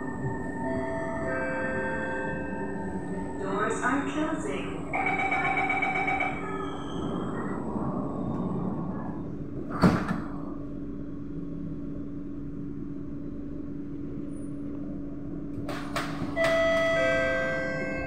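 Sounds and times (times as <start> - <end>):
steady hum: 0.0 - 18.0
train doors thumping shut: 9.7 - 10.4, 15.6 - 17.0.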